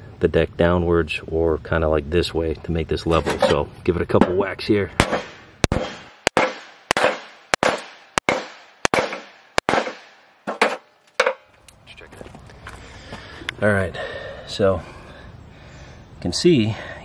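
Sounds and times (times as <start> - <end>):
hammer striking steel deck: 4.2 - 11.5.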